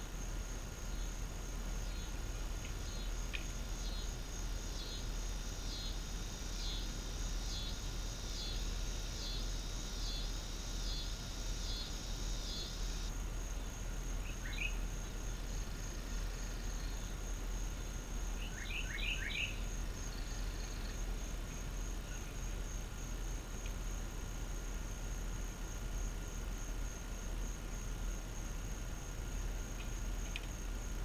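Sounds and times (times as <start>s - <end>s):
insect chirping: 0.0s - 31.0s
outdoor hiss: 0.0s - 31.0s
bird chirping: 14.3s - 14.8s, 18.4s - 19.6s.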